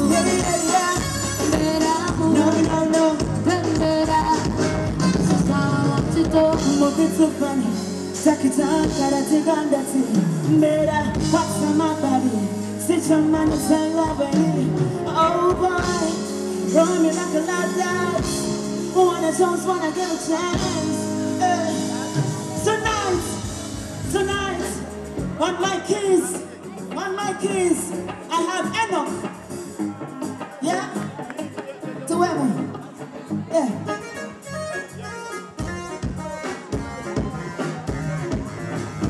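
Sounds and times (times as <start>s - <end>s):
woman singing lead: 0.0s - 24.2s
drums: 0.0s - 39.0s
electric bass guitar: 0.0s - 39.0s
keyboards: 0.0s - 39.0s.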